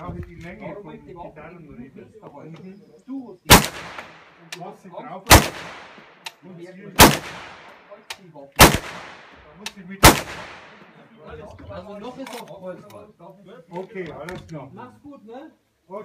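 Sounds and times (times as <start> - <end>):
rifle shots with echo: 3.5 - 4.5, 5.3 - 6.3, 7.0 - 7.9, 8.6 - 11.0.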